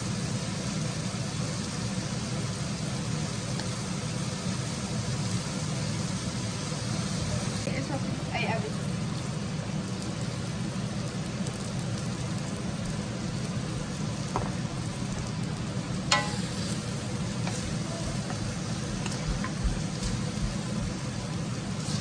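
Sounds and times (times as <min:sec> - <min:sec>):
food sizzling in a wok: 0:00.0 - 0:22.0
sharp metallic clank: 0:16.1 - 0:16.8
wooden spatula scraping a wok: 0:16.1 - 0:20.5.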